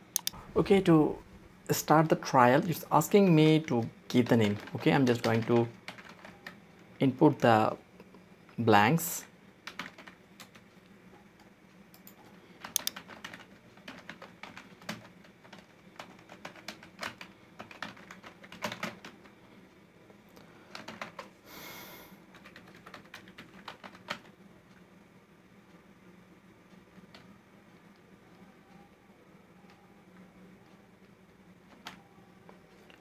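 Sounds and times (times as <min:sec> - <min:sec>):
keyboard typing clicks: 0:00.1 - 0:00.4, 0:11.4 - 0:19.1.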